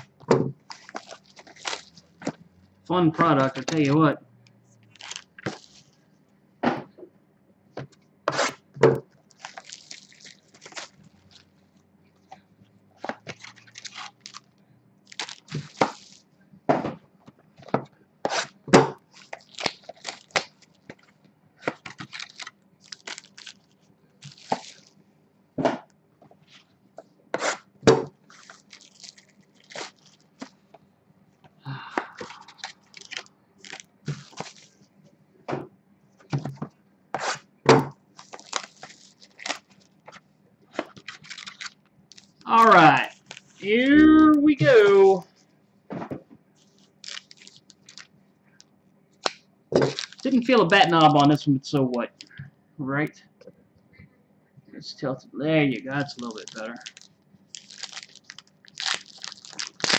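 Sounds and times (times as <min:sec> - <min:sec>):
plastic wrap crinkling: 0:00.0 - 0:02.6, 0:04.8 - 0:06.2, 0:09.1 - 0:12.3, 0:13.0 - 0:16.3, 0:18.4 - 0:25.0, 0:27.4 - 0:30.8, 0:32.1 - 0:35.0, 0:38.0 - 0:43.7, 0:46.5 - 0:51.4, 0:55.9 - 0:59.9.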